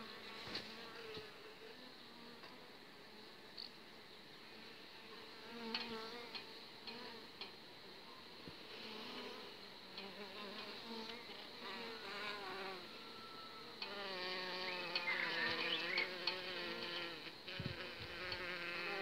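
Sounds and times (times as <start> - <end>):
bees buzzing: 8.6 - 19.0.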